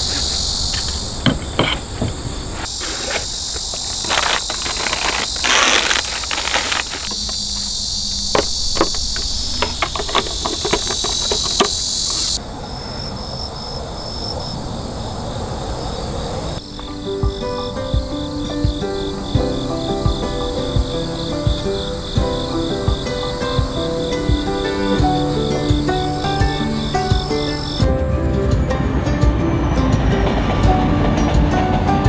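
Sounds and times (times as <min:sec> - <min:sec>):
rustling: 0:00.0 - 0:12.4
insect chirps: 0:00.0 - 0:28.0
crickets and insects trilling: 0:00.0 - 0:28.3
clicks and knocks of handling: 0:08.4 - 0:12.4.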